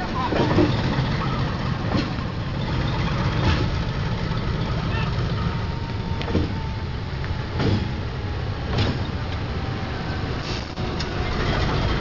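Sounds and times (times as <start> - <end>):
locomotive engine rumbling: 0.0 - 12.0.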